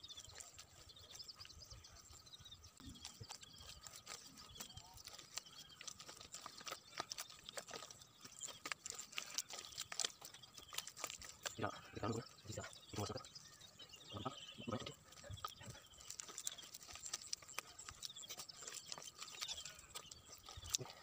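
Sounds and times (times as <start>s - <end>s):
hands squelching through wet mud: 2.8s - 13.2s.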